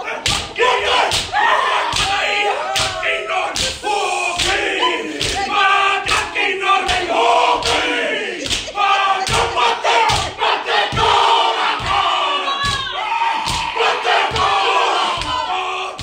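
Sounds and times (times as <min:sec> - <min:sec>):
men shouting a chant in unison: 0:00.0 - 0:16.0
body slaps: 0:00.2 - 0:02.2, 0:03.6 - 0:03.8.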